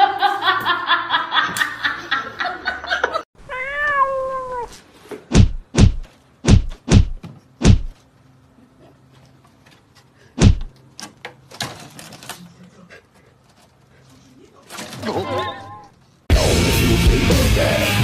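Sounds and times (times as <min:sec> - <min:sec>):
cat meowing: 0:03.5 - 0:04.8.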